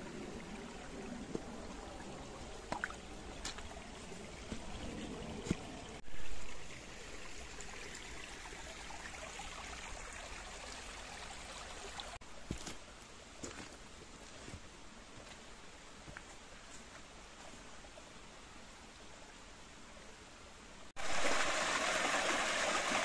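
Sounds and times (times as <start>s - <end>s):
stream rushing over rocks: 0.0s - 6.0s, 21.0s - 23.0s.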